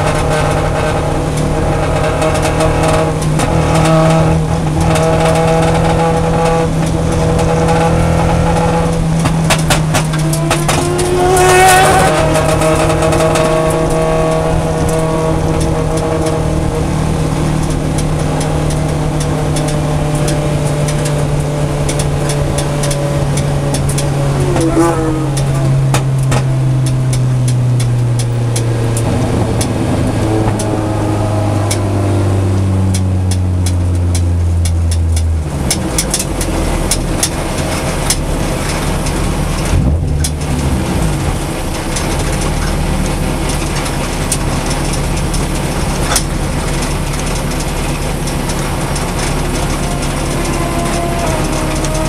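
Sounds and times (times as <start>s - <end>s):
car engine idling: 0.0s - 52.0s.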